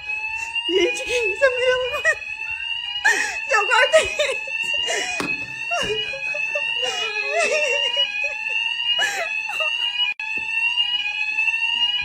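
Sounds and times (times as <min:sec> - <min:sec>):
fire alarm high tone: 0:00.0 - 0:12.0
woman crying out and laughing: 0:03.1 - 0:10.0.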